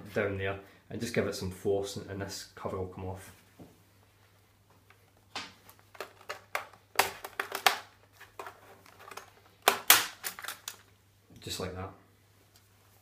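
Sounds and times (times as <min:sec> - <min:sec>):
plastic clips cracking and clicking: 0:05.4 - 0:10.9.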